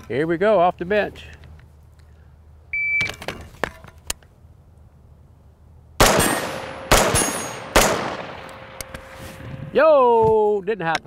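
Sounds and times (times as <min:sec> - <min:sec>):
rifle shots with echo: 0:06.0 - 0:09.1.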